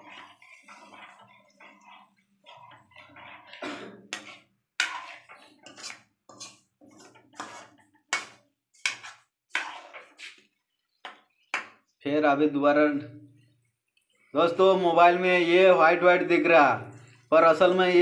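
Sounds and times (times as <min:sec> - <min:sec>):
metal spoon scraping metal pan: 0:00.0 - 0:10.5.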